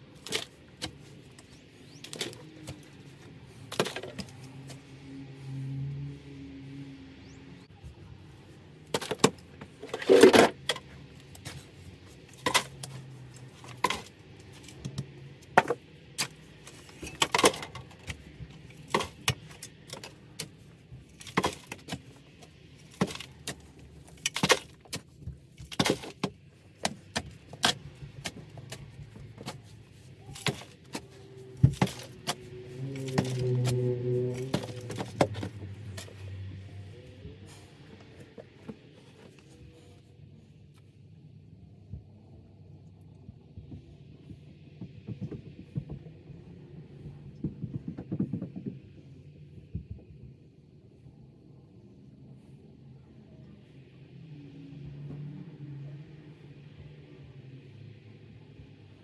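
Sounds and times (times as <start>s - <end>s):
shovel scraping dirt and gravel: 8.9s - 14.8s, 22.8s - 36.3s.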